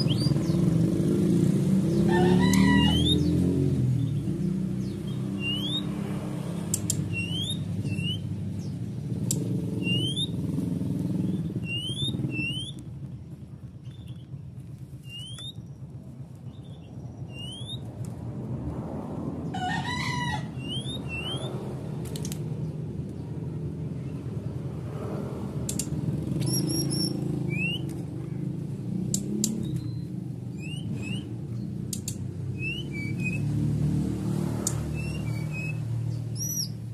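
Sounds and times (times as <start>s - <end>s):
bird chirping: 0.0s - 17.9s, 20.4s - 21.7s, 25.7s - 33.7s, 34.4s - 36.9s
bird call with stacked tones: 7.0s - 8.3s, 9.7s - 10.4s, 11.5s - 12.8s, 26.4s - 27.8s.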